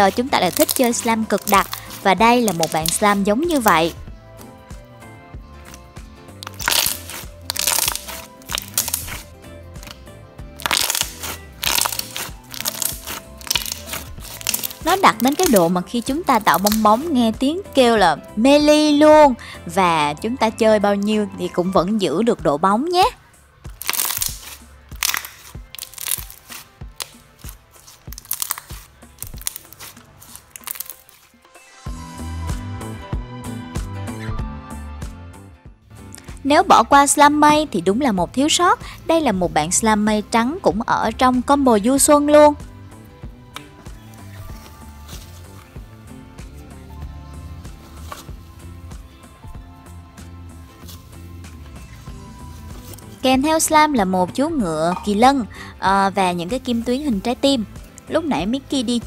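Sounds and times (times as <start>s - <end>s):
slime crackling and popping: 0.0s - 4.0s, 6.4s - 10.0s, 10.6s - 17.1s, 23.7s - 31.4s
background music with a beat: 1.5s - 19.4s, 31.3s - 36.6s, 42.5s - 55.4s
slime air bubbles popping: 6.4s - 9.2s, 10.6s - 15.7s.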